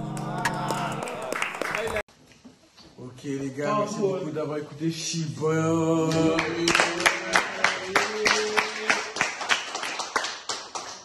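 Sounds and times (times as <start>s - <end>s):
people clapping in rhythm: 0.0s - 2.1s, 6.0s - 11.0s.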